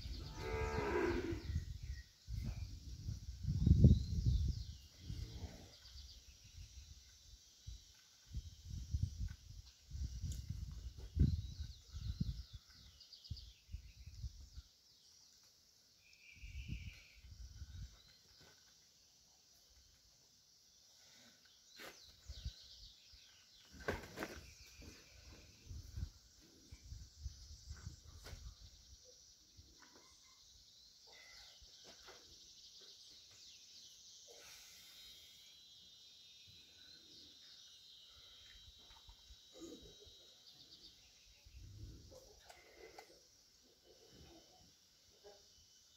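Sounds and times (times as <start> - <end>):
faint bird chirps: 0.0 - 20.0, 20.7 - 45.9
faint insect buzzing: 33.4 - 41.6.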